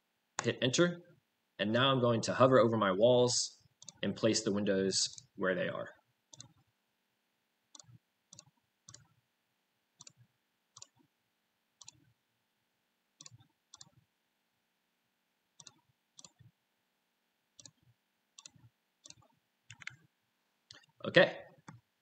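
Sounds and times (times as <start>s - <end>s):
faint computer mouse clicks: 3.8s - 4.0s, 6.3s - 6.6s, 7.7s - 9.2s, 10.0s - 11.1s, 11.8s - 12.1s, 13.2s - 14.0s, 15.6s - 16.5s, 17.6s - 20.0s.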